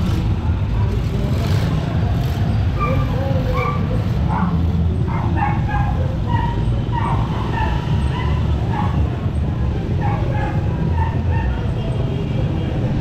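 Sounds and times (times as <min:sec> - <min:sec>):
motorcycle engine rumbling: 0:00.0 - 0:13.0
dog barking: 0:02.8 - 0:09.1, 0:10.0 - 0:11.7.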